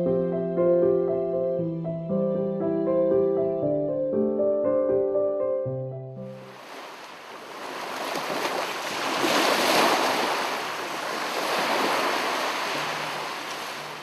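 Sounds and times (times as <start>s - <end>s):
ocean surf breaking: 6.4s - 14.0s.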